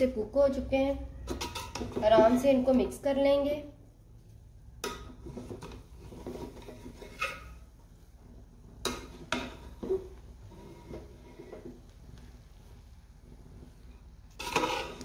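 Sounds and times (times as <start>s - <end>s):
spoon scraping through rice: 5.2s - 7.7s, 8.9s - 11.8s, 14.3s - 15.0s.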